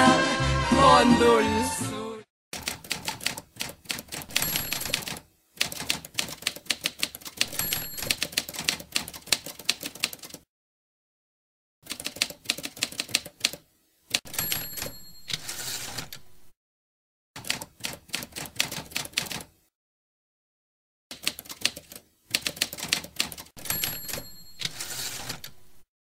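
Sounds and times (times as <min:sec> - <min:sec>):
typewriter keys clacking: 0:02.6 - 0:10.4, 0:11.9 - 0:16.5, 0:17.4 - 0:19.5, 0:21.1 - 0:25.8
typewriter bell ring: 0:04.3 - 0:05.2, 0:07.4 - 0:08.5, 0:14.3 - 0:16.4, 0:23.6 - 0:25.8.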